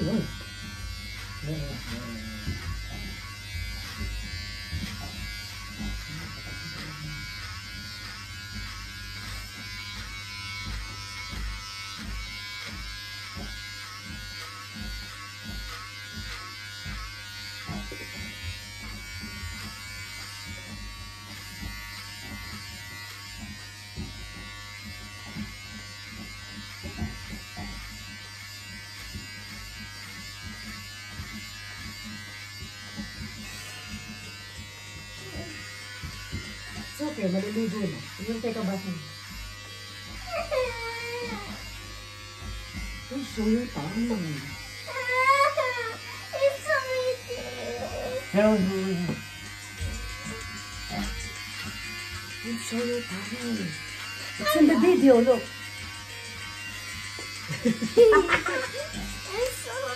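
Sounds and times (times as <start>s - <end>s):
electric hair clippers buzzing: 0.0s - 59.9s.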